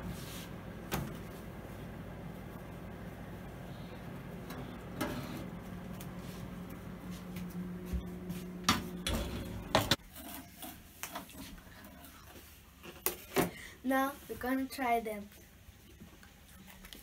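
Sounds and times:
oven hum: 0:00.0 - 0:10.0
baking tray scraping and clattering: 0:04.5 - 0:05.6.

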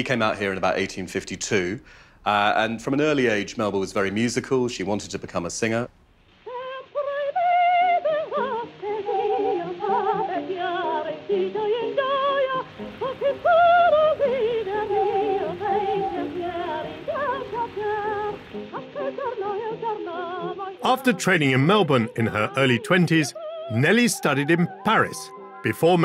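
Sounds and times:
soprano singing with vibrato: 0:06.5 - 0:26.0.

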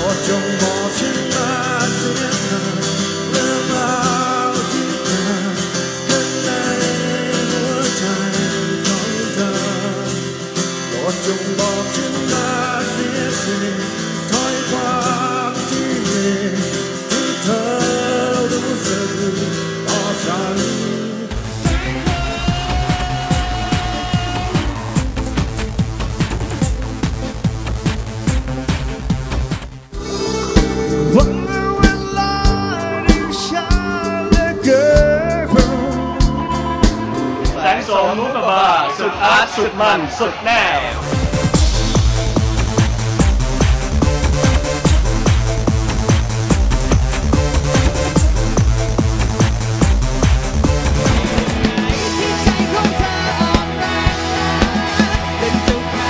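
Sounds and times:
man singing into microphone: 0:00.0 - 0:25.0, 0:30.4 - 0:41.0, 0:51.9 - 0:56.0
electric guitar: 0:00.0 - 0:27.3, 0:29.9 - 0:37.9, 0:40.8 - 0:56.0
drums: 0:00.0 - 0:37.9, 0:40.3 - 0:56.0.

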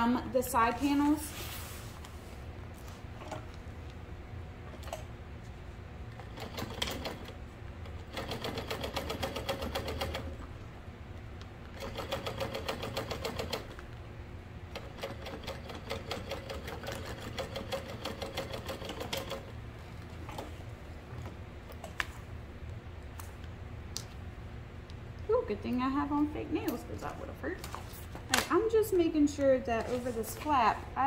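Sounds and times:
sewing machine stitching: 0:06.2 - 0:07.3, 0:08.1 - 0:10.3, 0:11.8 - 0:13.7.

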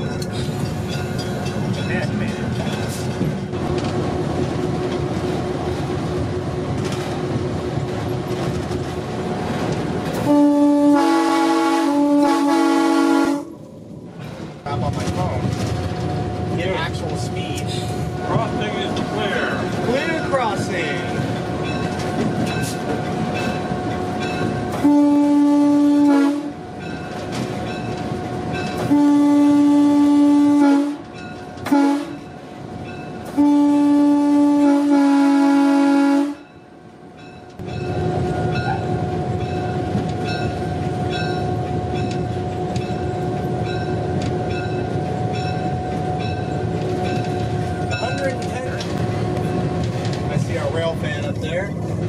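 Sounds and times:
locomotive air horn blasts: 0:10.2 - 0:13.5, 0:24.8 - 0:26.6, 0:28.8 - 0:32.2, 0:33.3 - 0:36.5.

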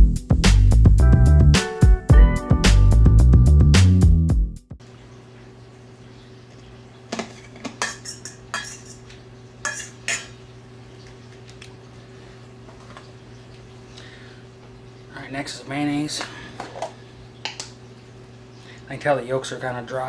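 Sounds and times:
fork mashing eggs in metal bowl: 0:07.2 - 0:10.4.

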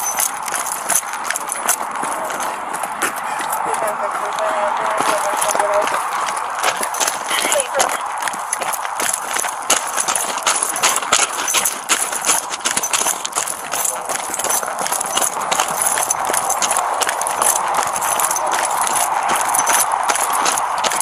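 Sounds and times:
running footfalls on gravel: 0:00.0 - 0:21.0
steady rushing noise: 0:00.0 - 0:21.0
gear knocking: 0:05.8 - 0:21.0.

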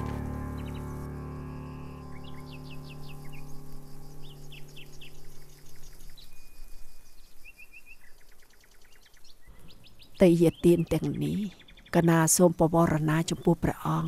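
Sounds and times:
low musical drone: 0:00.0 - 0:06.8
bird trill: 0:00.0 - 0:14.0
birds chirping and calling: 0:00.0 - 0:14.0.

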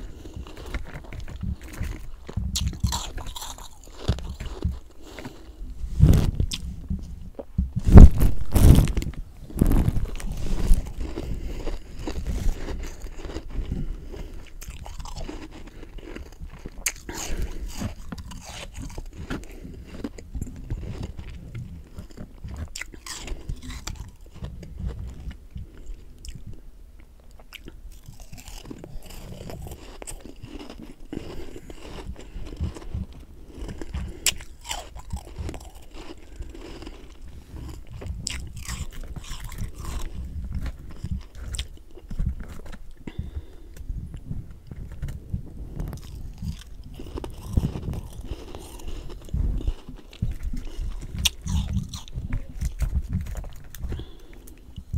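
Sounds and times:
chewing crunchy ice: 0:00.0 - 0:06.9, 0:08.0 - 0:26.6, 0:27.4 - 0:54.9.

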